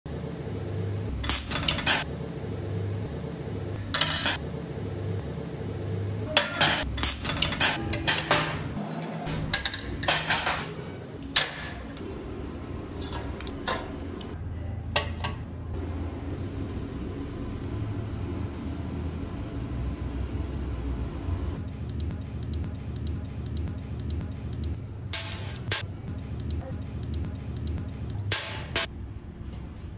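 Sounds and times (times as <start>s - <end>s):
metal tools clanking: 13.0s - 14.4s.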